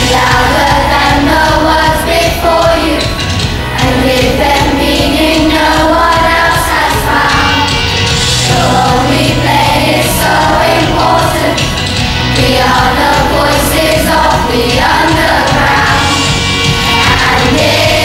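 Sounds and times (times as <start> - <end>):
children's choir singing: 0.0 - 18.0
instrumental accompaniment: 0.0 - 18.0.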